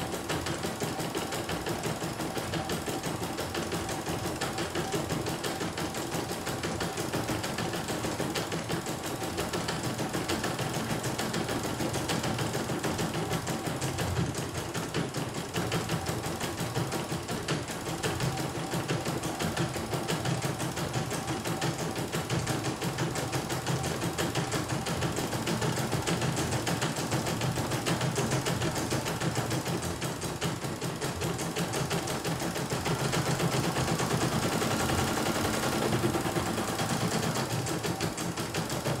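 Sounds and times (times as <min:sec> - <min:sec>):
embroidery machine needle clatter: 0:14.9 - 0:39.0.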